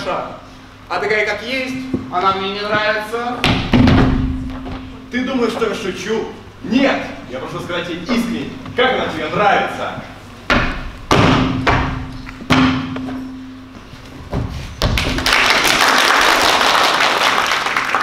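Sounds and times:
faint steady hum: 0.0s - 18.0s
heavy thumps: 1.8s - 5.7s, 10.4s - 15.2s.

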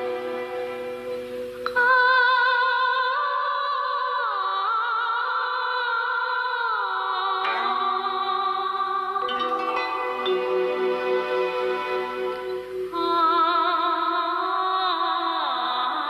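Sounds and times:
high wordless voice singing: 1.7s - 11.0s, 12.9s - 16.0s
held instrumental chord: 7.4s - 13.0s.

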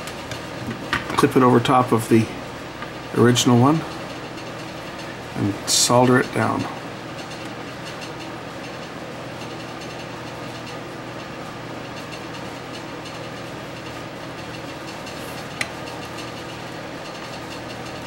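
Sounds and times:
steady mechanical hum: 0.0s - 18.0s.

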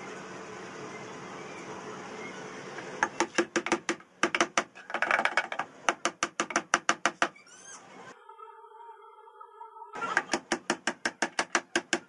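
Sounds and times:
hammer tapping nails into board: 3.0s - 4.7s, 5.4s - 7.3s, 10.2s - 12.0s.

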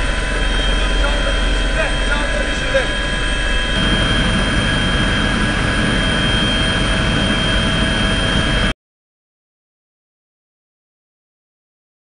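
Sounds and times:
helicopter rotor noise: 0.0s - 8.7s
high turbine whine: 0.0s - 8.8s.

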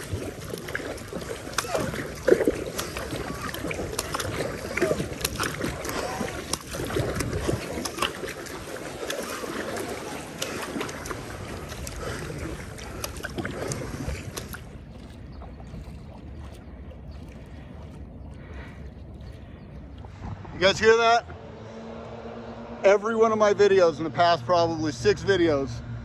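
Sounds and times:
water dripping from paddle: 0.0s - 20.2s
paddle strokes splashing water: 0.0s - 23.6s.

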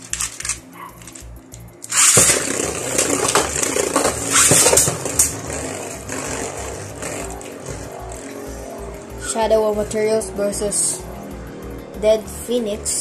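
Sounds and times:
plastic clicks of handled toys: 0.0s - 5.3s
spinning tops clattering: 0.0s - 8.3s
background music with steady beat: 0.0s - 13.0s
spinning top launch: 1.8s - 8.4s.

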